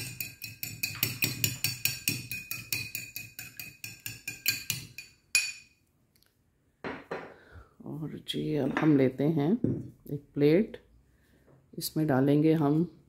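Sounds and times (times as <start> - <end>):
fork clinking against glass bowl: 0.0 - 5.7.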